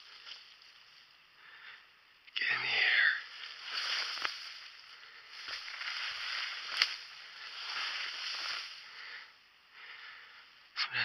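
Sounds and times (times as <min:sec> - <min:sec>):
ferns rustling against legs: 0:00.0 - 0:01.6, 0:02.4 - 0:09.4
twig snapping: 0:03.3 - 0:04.7, 0:05.4 - 0:07.1.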